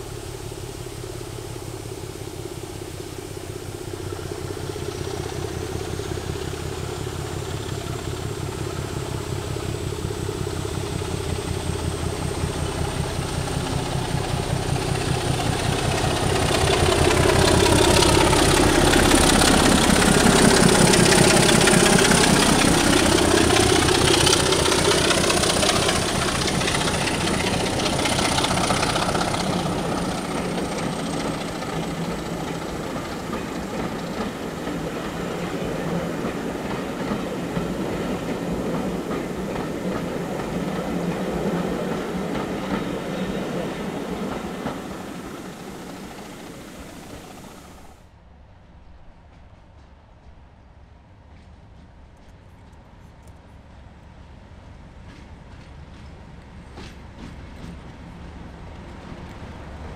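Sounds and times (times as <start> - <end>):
high steady whine: 0.0 - 48.0
train coaches rolling: 0.0 - 48.0, 51.2 - 59.9
diesel locomotive engine rumbling: 0.0 - 59.9.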